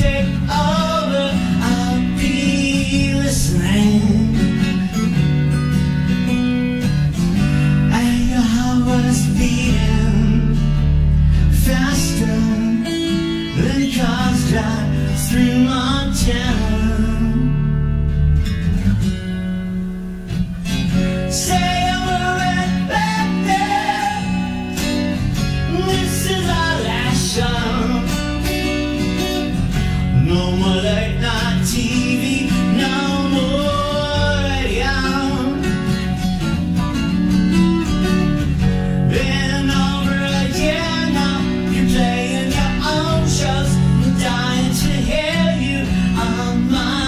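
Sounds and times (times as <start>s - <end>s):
man singing into microphone: 0.0s - 4.7s, 7.8s - 10.8s, 11.4s - 17.7s, 21.3s - 24.9s, 25.6s - 28.4s, 30.1s - 36.0s, 39.1s - 47.0s
acoustic guitar: 0.0s - 47.0s.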